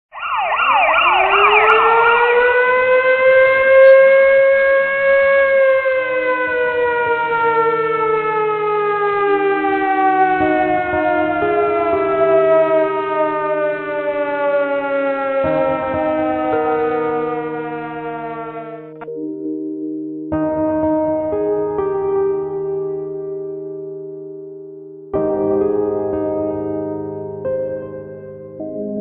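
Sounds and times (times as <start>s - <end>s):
air-raid siren winding: 0.7s - 7.8s
low drone of held notes: 1.9s - 23.9s, 25.2s - 29.0s.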